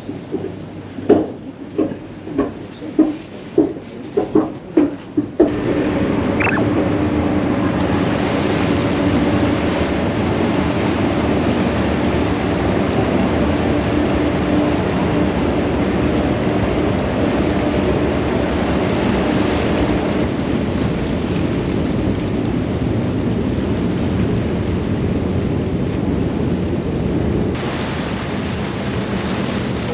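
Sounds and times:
rushing churning water: 7.4 - 29.9.

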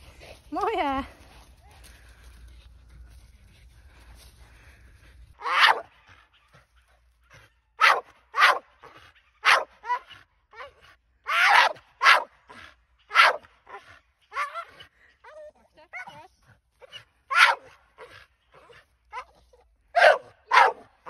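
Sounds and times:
dog barking: 5.4 - 6.3, 7.3 - 14.8, 16.9 - 18.1, 20.0 - 20.9.

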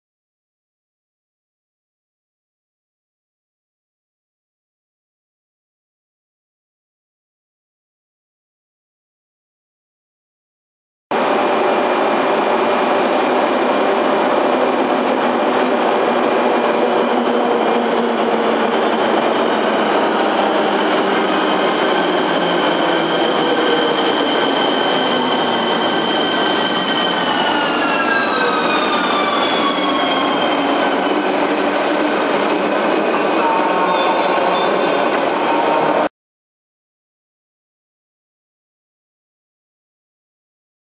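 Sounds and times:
electric locomotive whine: 11.2 - 36.1.

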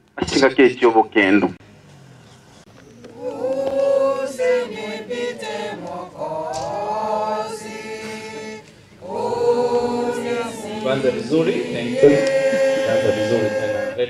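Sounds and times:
congregation singing a hymn: 2.9 - 14.0.

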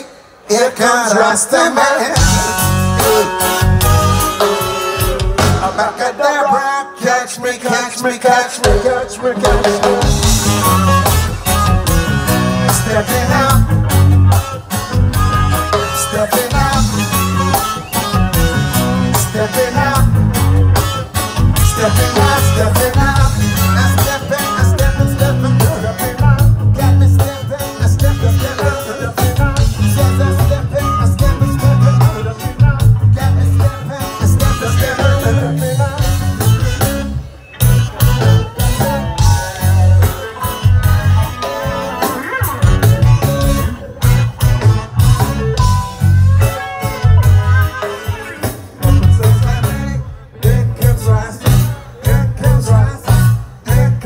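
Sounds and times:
live reggae band: 0.0 - 54.0
person singing: 0.0 - 54.0
heavy bass: 2.2 - 6.1, 8.6 - 54.0
drum beat: 8.6 - 14.1.

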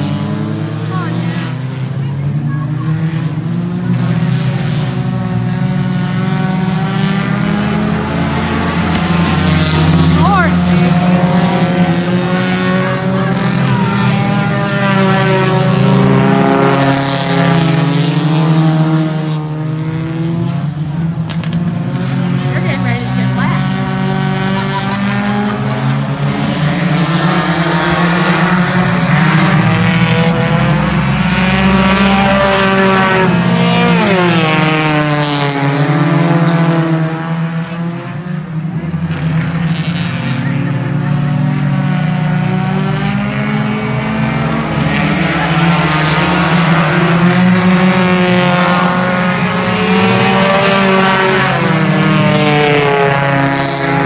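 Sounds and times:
race car engines at full throttle: 0.0 - 54.0.

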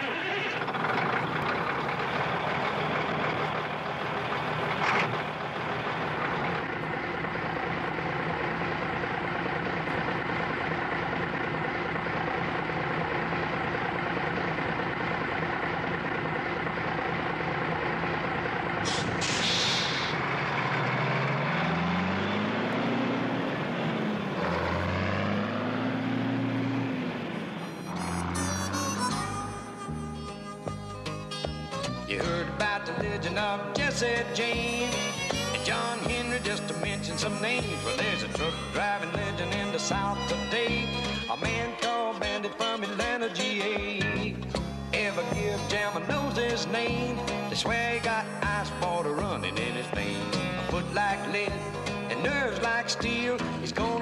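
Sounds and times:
diesel truck engine: 0.0 - 54.0
air brake hiss: 18.8 - 20.2
brief sharp sound: 18.8 - 20.2.

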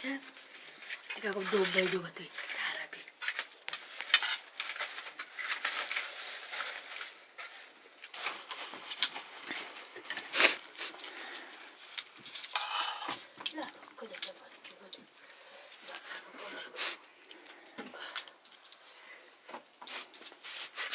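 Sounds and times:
metal spoon scraping steel plate: 12.5 - 13.2.

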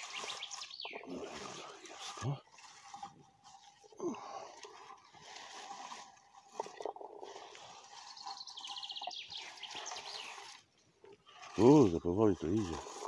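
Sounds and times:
bird trill: 0.0 - 1.1, 8.1 - 10.3.

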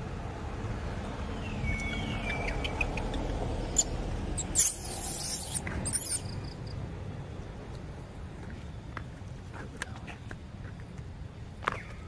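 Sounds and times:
macaques squealing: 1.7 - 6.4.

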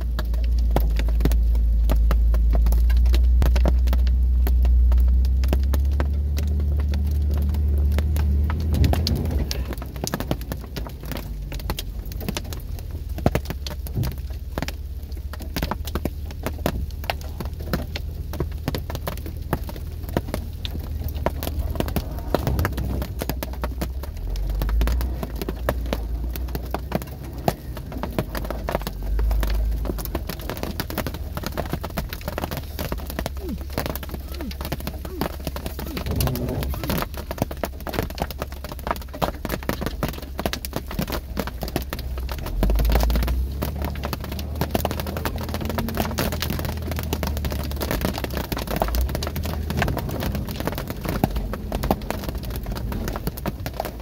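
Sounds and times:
engine low rumble: 0.0 - 54.0
hail pelting car roof: 0.0 - 54.0.

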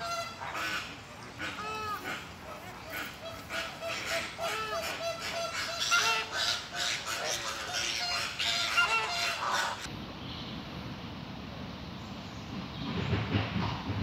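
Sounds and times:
flamingos honking: 0.0 - 9.9
low background noise: 0.0 - 14.0.

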